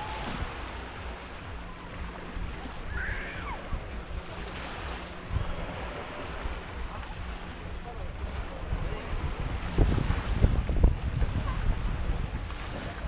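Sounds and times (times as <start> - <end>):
faint high gliding call: 0.0 - 4.0
waves lapping on sandy shore: 0.0 - 13.0
wind buffeting microphone: 0.0 - 13.0.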